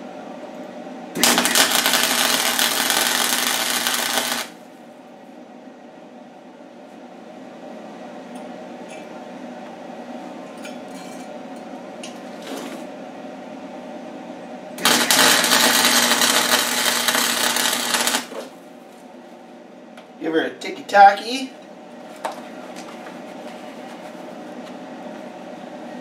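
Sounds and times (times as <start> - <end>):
steady hum: 0.0 - 26.0
welding arc crackling: 1.2 - 4.6, 14.8 - 18.6.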